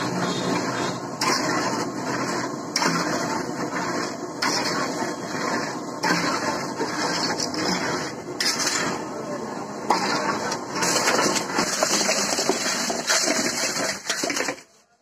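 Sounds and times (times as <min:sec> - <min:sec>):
batter beaten in metal bowl: 0:09.8 - 0:14.7.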